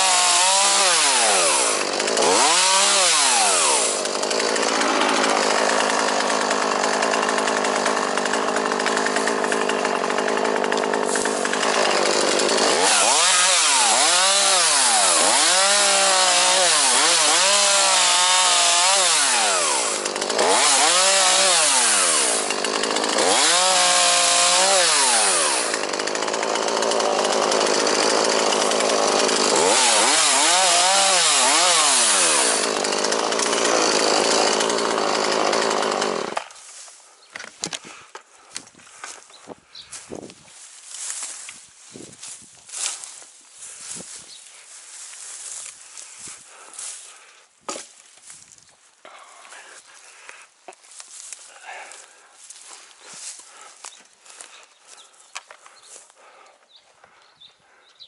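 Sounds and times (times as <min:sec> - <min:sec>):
chainsaw revving: 0:00.0 - 0:36.6, 0:42.2 - 0:47.3, 0:51.2 - 0:54.6.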